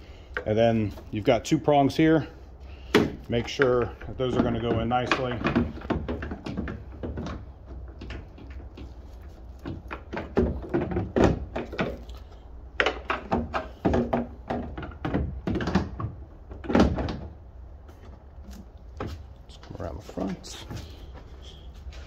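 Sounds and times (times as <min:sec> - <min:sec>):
hard plastic knocks and clicks: 0:02.9 - 0:19.2.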